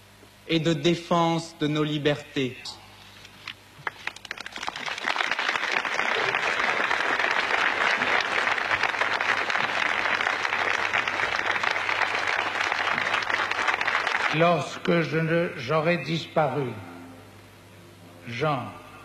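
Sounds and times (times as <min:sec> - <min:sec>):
crowd applauding: 0:03.8 - 0:14.8.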